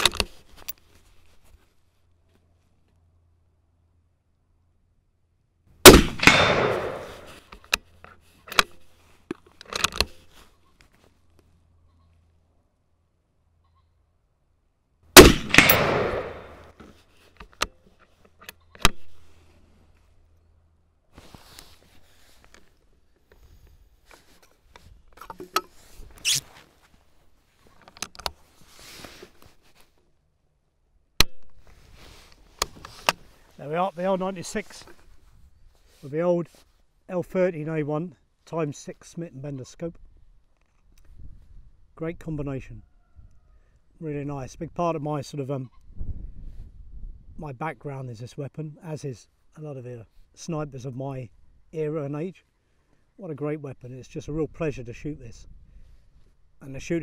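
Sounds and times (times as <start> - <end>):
short scraping rustle: 0.0 - 2.8, 7.0 - 12.3, 16.4 - 20.2, 21.1 - 30.1, 31.6 - 36.9
rifle shot echoing: 5.8 - 7.4, 15.2 - 16.7
rifle bolt metallic clicks: 5.8 - 7.8, 8.5 - 10.2, 15.2 - 16.7.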